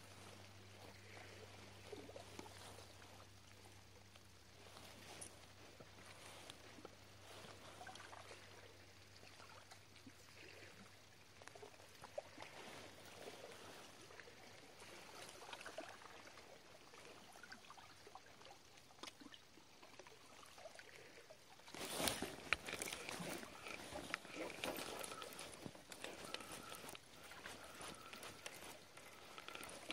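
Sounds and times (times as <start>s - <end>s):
seawater lapping against rocks: 0.0s - 29.9s
small ticks: 22.0s - 29.9s.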